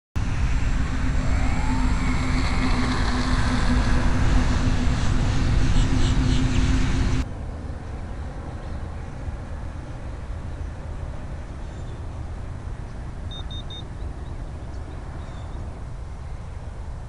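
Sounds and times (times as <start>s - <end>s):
electric motor whine: 0.2s - 7.2s
wind noise on microphone: 0.2s - 17.0s.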